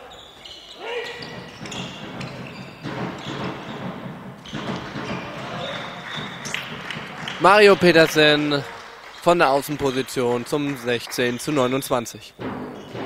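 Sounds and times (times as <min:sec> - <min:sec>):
running footsteps: 0:00.8 - 0:08.6
ball bouncing on wooden floor: 0:01.2 - 0:07.2.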